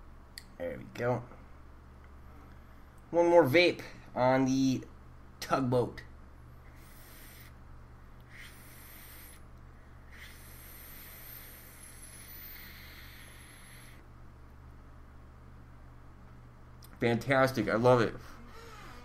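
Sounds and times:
airy hiss of vape drag: 6.7 - 7.6, 8.3 - 9.4, 10.1 - 14.0.

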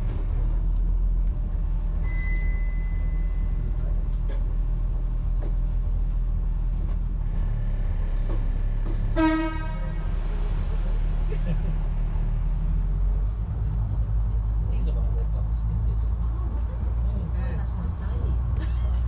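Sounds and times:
high steady beep: 2.0 - 3.4.

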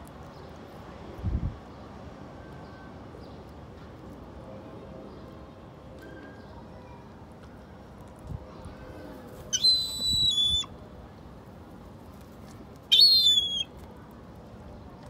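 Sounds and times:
gull whistling calls: 9.5 - 10.7, 12.9 - 13.7.

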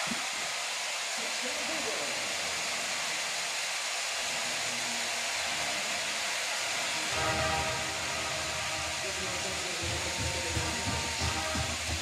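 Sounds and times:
music with sustained notes: 6.1 - 12.0
stadium crowd cheering: 6.5 - 12.0.

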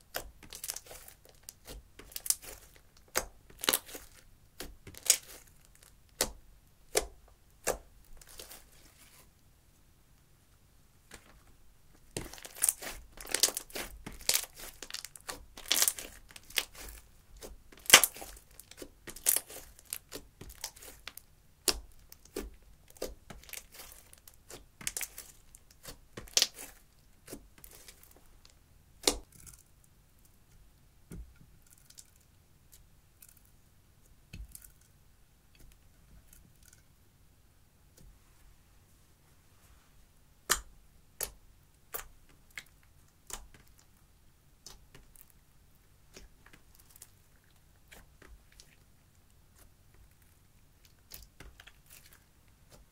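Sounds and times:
slime crackling and popping: 0.1 - 8.7, 12.1 - 28.2.

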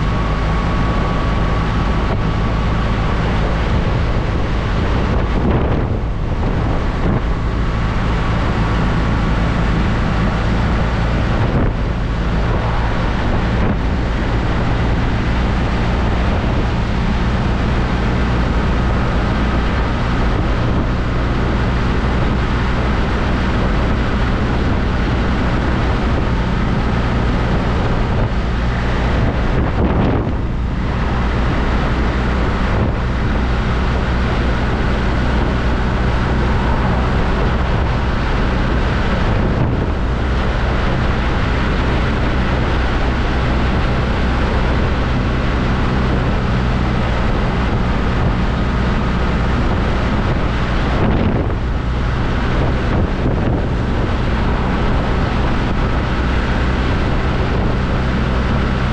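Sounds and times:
wind rush on microphone: 0.0 - 58.9.

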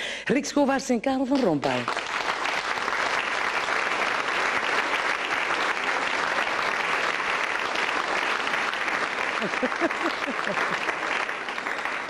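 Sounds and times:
audience applauding: 1.6 - 12.0.

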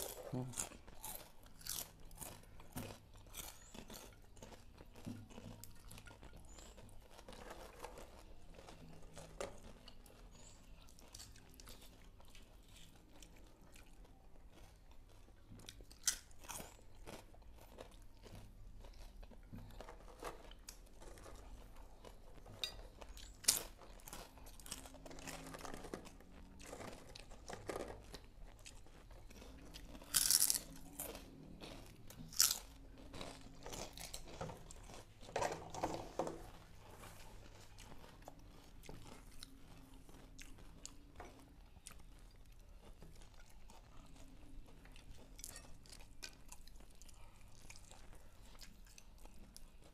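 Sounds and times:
chewing and crunching food: 0.0 - 49.9.

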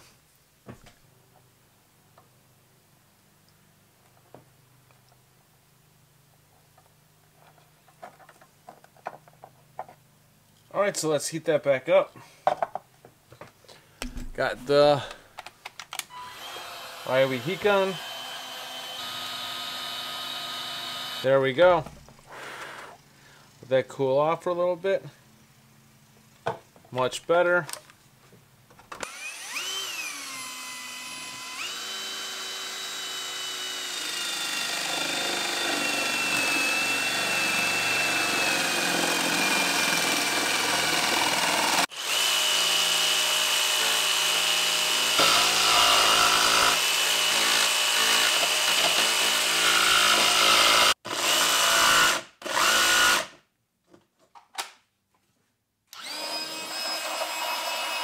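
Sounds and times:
electric motor whine: 16.1 - 21.2, 29.0 - 48.1, 56.0 - 57.2.

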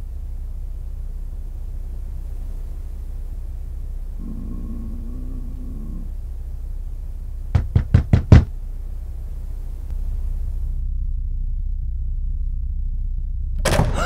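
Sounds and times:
low rumble: 0.0 - 7.6, 8.5 - 14.0
knocks on a door: 7.6 - 8.5.

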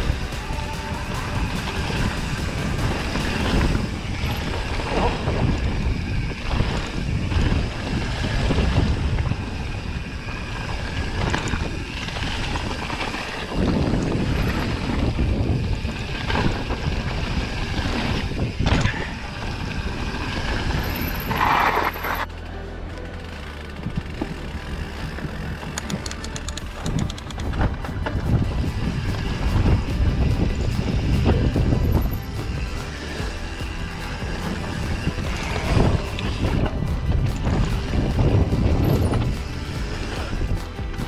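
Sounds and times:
wind rumble on microphone: 0.0 - 22.2, 23.7 - 41.0.

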